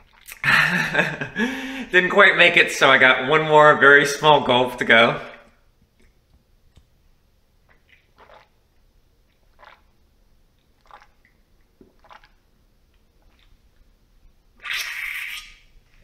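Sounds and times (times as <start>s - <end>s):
man gulping and swallowing: 0.0s - 1.9s, 7.6s - 8.6s, 9.3s - 10.0s, 10.6s - 13.9s.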